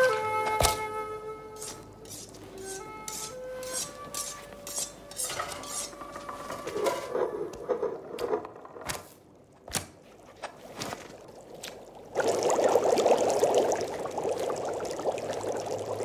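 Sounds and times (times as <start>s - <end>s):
held musical notes: 0.0s - 7.1s
utensils and dishes clattering: 1.6s - 8.4s.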